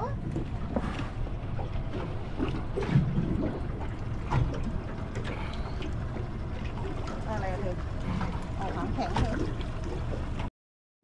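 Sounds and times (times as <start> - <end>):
water lapping against hull: 0.0 - 10.5.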